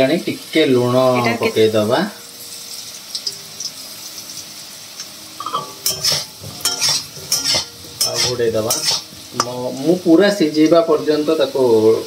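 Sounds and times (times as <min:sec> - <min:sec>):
potatoes sizzling in hot oil: 0:00.0 - 0:12.0
metal spatula scraping pan: 0:05.4 - 0:09.6.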